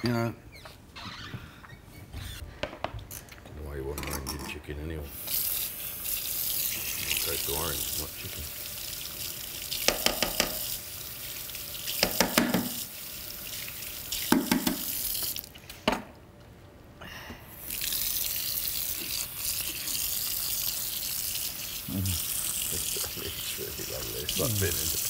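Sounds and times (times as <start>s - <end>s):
tap running water into sink: 5.2s - 15.5s, 17.7s - 25.0s
knocks and clatters at sink: 9.8s - 10.7s, 12.0s - 12.8s, 14.3s - 14.9s.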